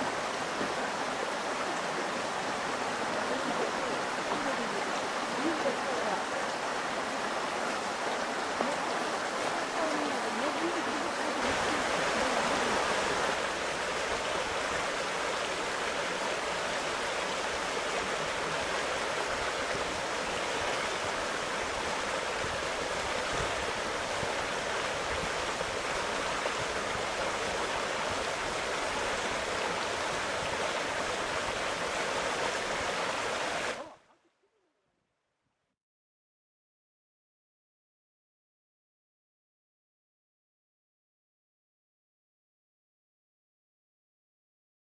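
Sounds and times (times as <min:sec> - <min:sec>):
stream water running over rocks: 0:00.0 - 0:34.2.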